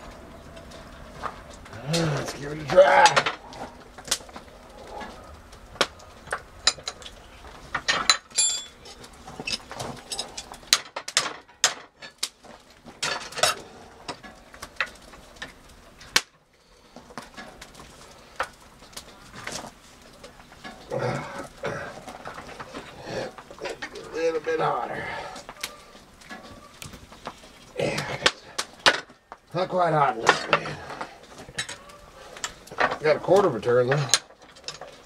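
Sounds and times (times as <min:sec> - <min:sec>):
metal tools clanking on metal: 0:07.7 - 0:12.2, 0:13.0 - 0:14.2, 0:30.0 - 0:35.0.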